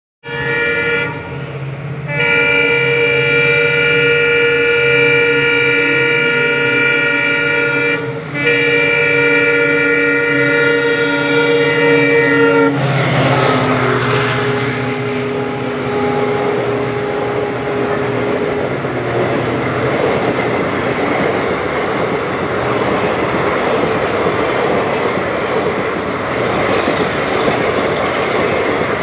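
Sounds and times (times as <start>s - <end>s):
train air horn blasts: 0.2s - 19.5s
train rushing past: 0.2s - 29.0s.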